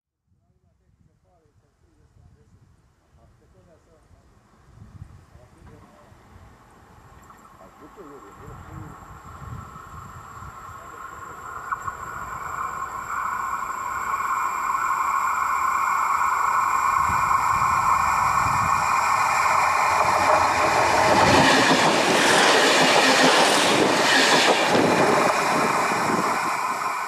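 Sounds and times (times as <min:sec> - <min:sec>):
train wheels clattering on rails: 0:18.8 - 0:27.0.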